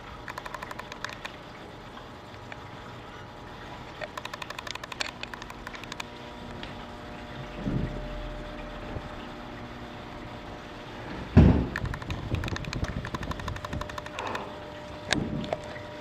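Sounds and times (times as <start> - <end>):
faint steady hum: 0.0 - 16.0
thump: 11.4 - 11.7.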